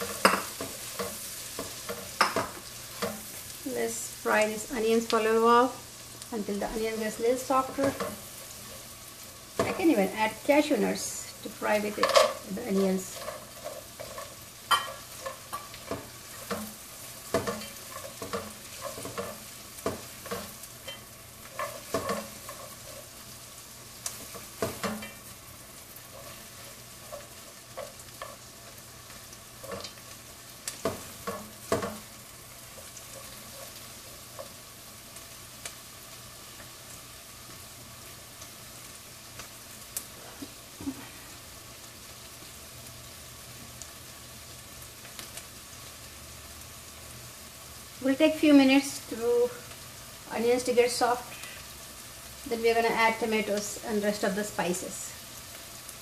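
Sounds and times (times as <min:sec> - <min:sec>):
onions sizzling in a pot: 0:00.0 - 0:56.0
spoon scraping and knocking pot: 0:13.1 - 0:16.7, 0:17.3 - 0:23.1.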